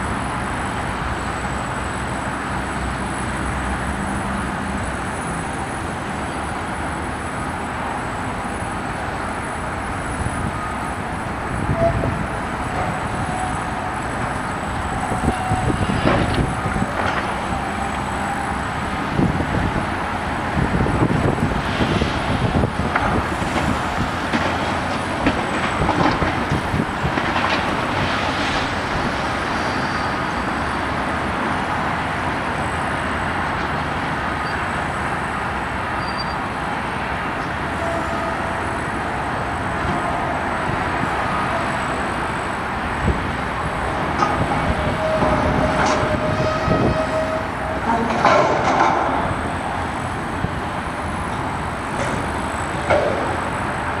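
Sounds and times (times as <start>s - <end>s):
heavy machinery running: 0.0s - 54.0s
brief squeal: 36.0s - 36.4s.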